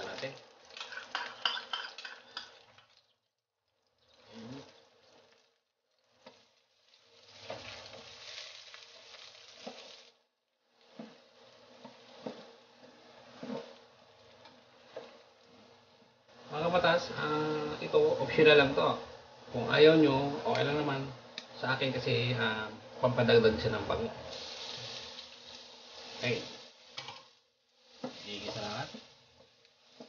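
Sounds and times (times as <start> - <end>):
garlic sizzling in oil: 0.0 - 3.2, 3.8 - 30.0
spatula scraping a pan: 0.7 - 2.9, 6.0 - 10.1, 10.7 - 16.1, 24.3 - 30.0.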